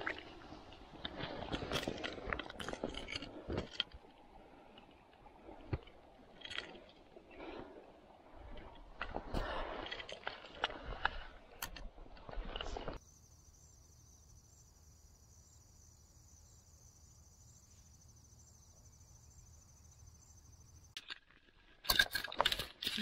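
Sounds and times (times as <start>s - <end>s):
insects chirring: 13.0s - 21.0s.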